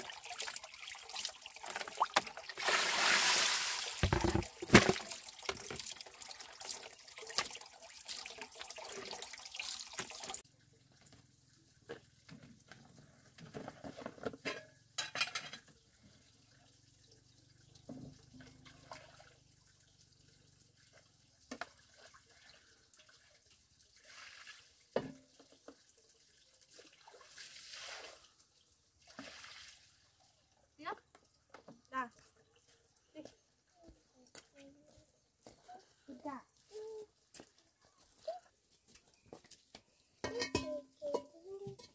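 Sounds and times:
running water: 0.0 - 12.4.

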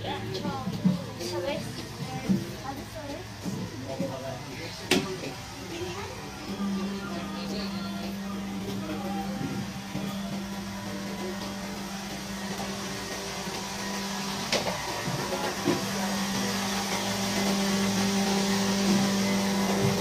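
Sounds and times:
steady machine hum: 0.0 - 20.0.

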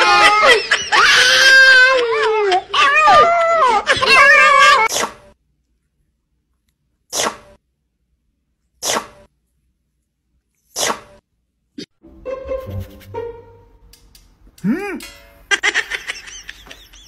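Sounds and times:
cat sneezing: 8.8 - 9.2.

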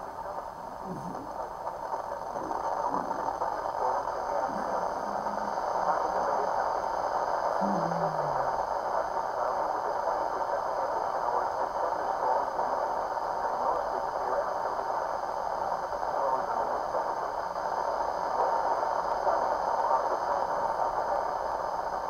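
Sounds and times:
radio static hiss: 0.0 - 22.0.

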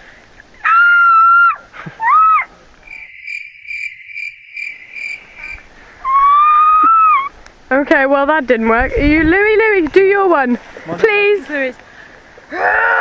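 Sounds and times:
high-pitched pulsing chirring: 2.9 - 5.6
woman hooting calls: 6.0 - 7.3.

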